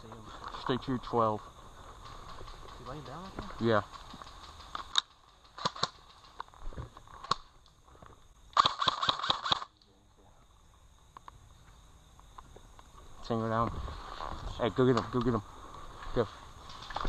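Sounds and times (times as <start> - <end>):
airsoft rifle firing: 2.1 - 6.4, 8.6 - 9.7.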